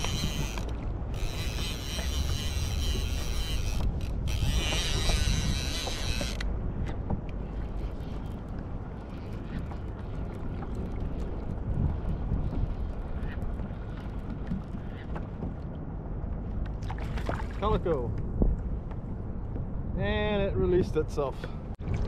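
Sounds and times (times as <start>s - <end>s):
fishing reel gears whining: 0.0s - 6.5s.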